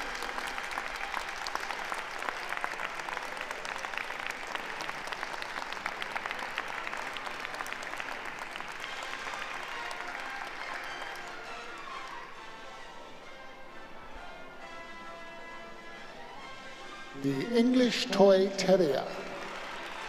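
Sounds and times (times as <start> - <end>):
audience applauding: 0.0 - 13.0, 17.2 - 20.0.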